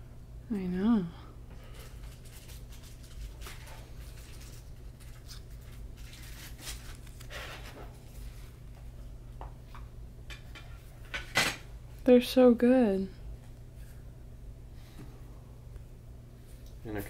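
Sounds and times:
steady low hum: 0.0 - 17.0
cards rustling and clicking: 1.8 - 8.3.

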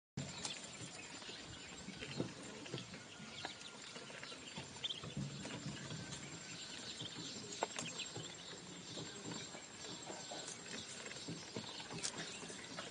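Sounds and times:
duckling peeps: 0.4 - 9.4.

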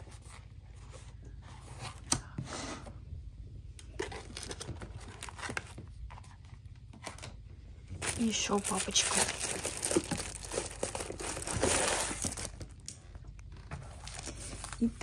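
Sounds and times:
paper and plastic rustling: 3.9 - 7.3, 8.0 - 12.9, 13.6 - 15.0.

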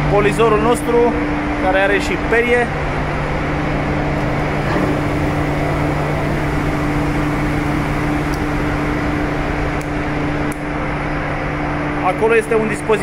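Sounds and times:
engine room machinery noise: 0.0 - 13.0
bench grinder motor hum: 4.1 - 10.5.

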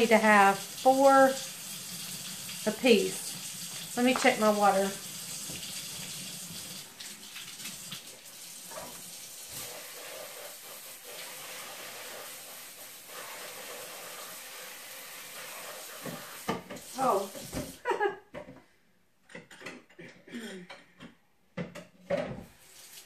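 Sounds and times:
faucet water pouring into sink: 0.0 - 17.8.

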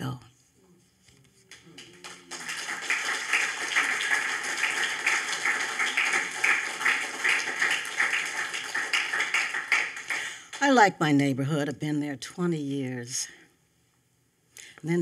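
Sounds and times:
audience applauding: 1.5 - 10.7.

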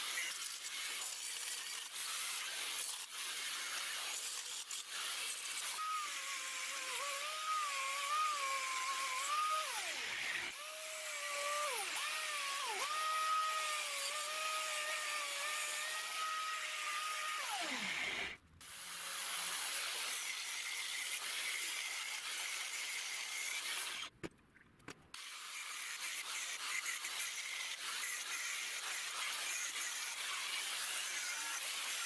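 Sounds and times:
angle grinder cutting steel: 0.0 - 24.1, 25.2 - 32.0
grinder motor high whine: 5.7 - 18.4.

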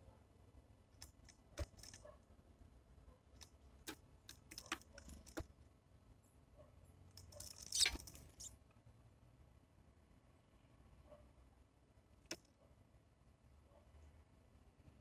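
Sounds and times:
bird rustling and clicks: 1.0 - 2.0, 3.4 - 5.5, 7.2 - 8.5.

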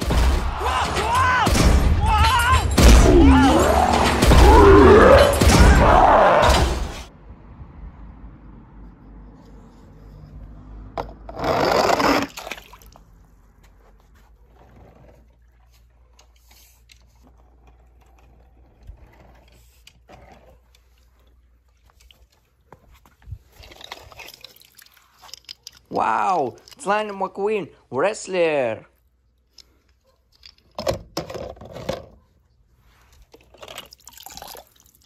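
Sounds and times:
toy car splashing into water: 12.0 - 13.0
faint water movement: 20.6 - 25.9
pool net rustling and scraping: 31.6 - 33.6.

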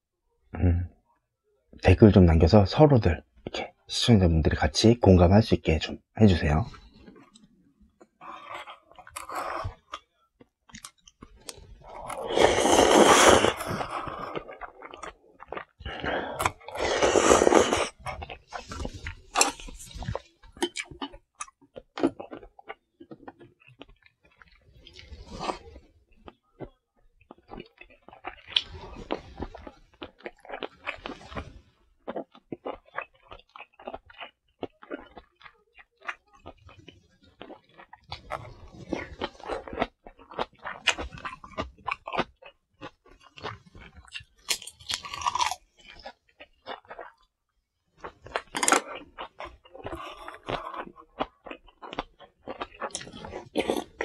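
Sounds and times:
chewing: 6.7 - 54.0
loud noodle slurps: 11.8 - 14.5, 15.9 - 19.1.

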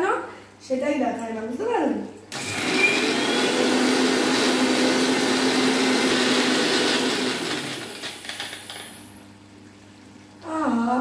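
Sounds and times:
electric mixer grinder running: 2.3 - 9.1.

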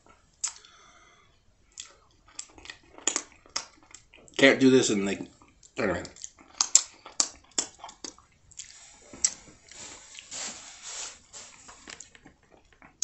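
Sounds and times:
wet smacking and sucking: 6.6 - 12.2
soft hissing noise: 8.6 - 12.3.

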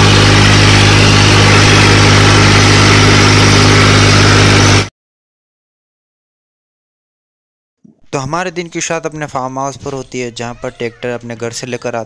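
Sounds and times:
tractor diesel engine running: 0.0 - 4.9.

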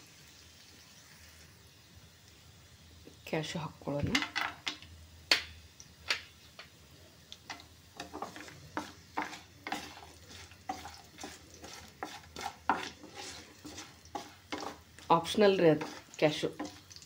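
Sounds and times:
faint frying sizzle: 0.0 - 17.0
wooden spatula scraping a pan: 7.5 - 17.0.

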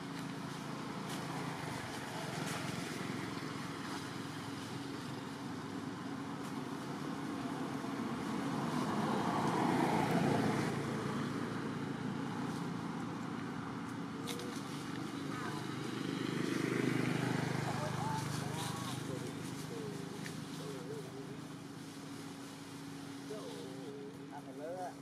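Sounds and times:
motor vehicle humming: 0.0 - 25.0.

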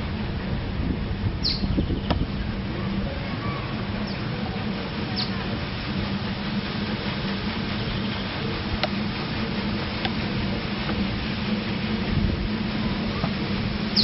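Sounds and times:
low mechanical hum: 0.0 - 14.0
downward-sweeping bird chirps: 1.4 - 2.2, 5.1 - 5.4.

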